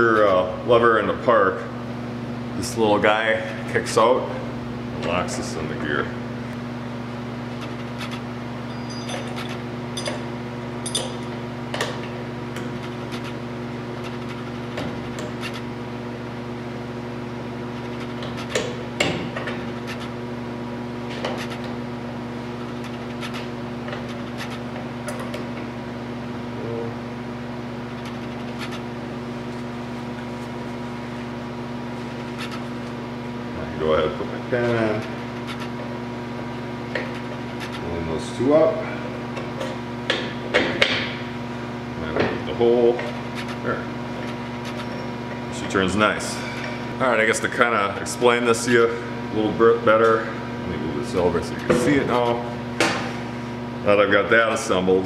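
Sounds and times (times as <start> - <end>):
steady hum: 0.0 - 55.0.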